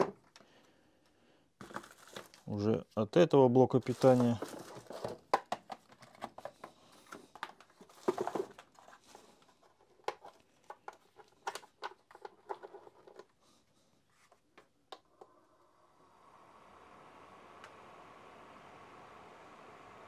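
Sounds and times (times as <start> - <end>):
plastic bag crinkling: 3.7 - 5.2.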